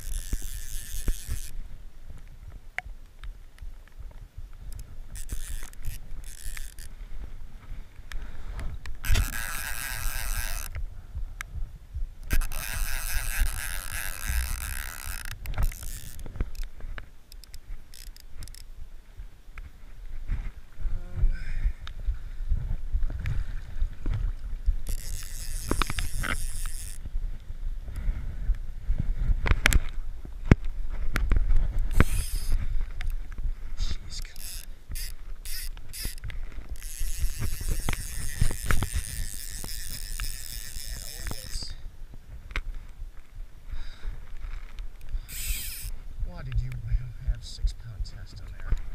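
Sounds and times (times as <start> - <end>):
clicks and knocks of fishing gear: 0.0 - 10.9, 12.2 - 18.7, 23.0 - 28.0, 29.4 - 41.8, 42.4 - 43.4
wind rumbling on microphone: 0.0 - 48.9.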